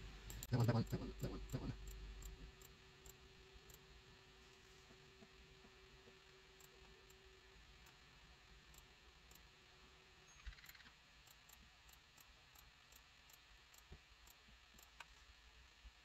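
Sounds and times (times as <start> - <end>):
computer mouse clicks: 0.2 - 3.8.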